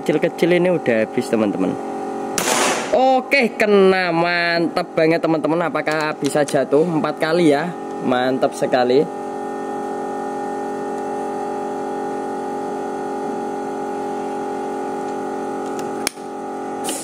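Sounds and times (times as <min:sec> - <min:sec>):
steady hum of held tones: 0:00.0 - 0:17.0
air rifle firing: 0:02.4 - 0:03.0.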